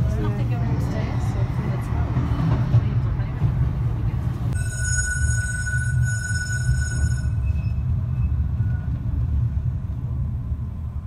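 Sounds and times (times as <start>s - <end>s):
tram motors and wheels rumbling: 0.0s - 11.0s
high-pitched squeal: 4.6s - 8.9s.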